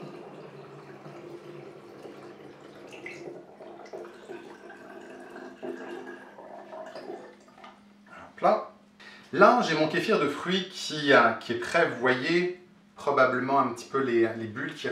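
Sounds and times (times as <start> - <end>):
liquid pouring into glass bottle: 0.0 - 7.8.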